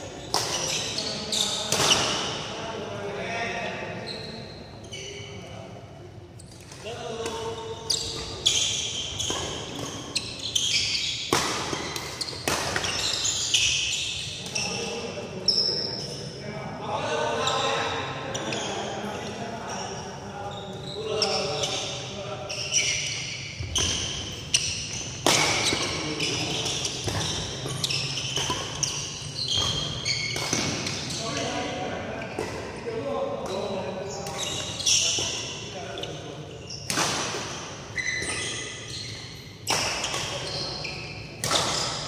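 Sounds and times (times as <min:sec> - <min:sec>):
shoes squeaking on court: 0:00.1 - 0:02.3, 0:06.4 - 0:16.2, 0:18.3 - 0:32.7, 0:33.4 - 0:42.0
rackets hitting shuttlecock: 0:11.2 - 0:13.2, 0:23.6 - 0:29.0, 0:29.6 - 0:31.0, 0:36.9 - 0:38.3, 0:41.4 - 0:42.0.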